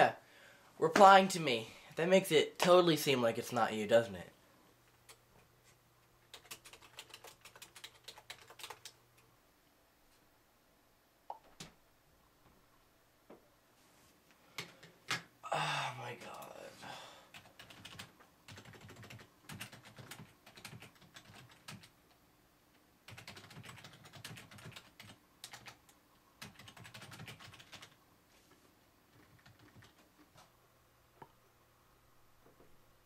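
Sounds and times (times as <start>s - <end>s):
faint keyboard typing: 4.9s - 9.3s, 14.5s - 15.3s, 17.3s - 28.0s, 28.6s - 30.5s.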